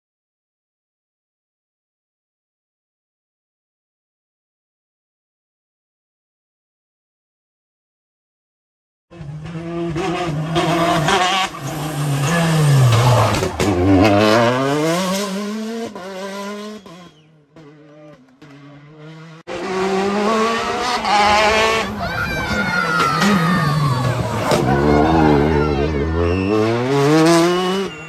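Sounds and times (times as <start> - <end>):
rally car engine revving hard: 9.1 - 22.0, 23.0 - 28.0
another rally car revving: 9.1 - 22.1, 22.9 - 28.0.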